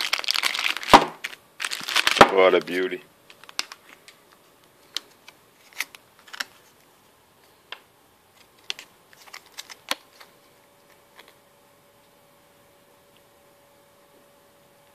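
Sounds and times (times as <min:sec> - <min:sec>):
plastic sleeve crinkling and clicking: 0:00.0 - 0:06.9, 0:08.3 - 0:11.4.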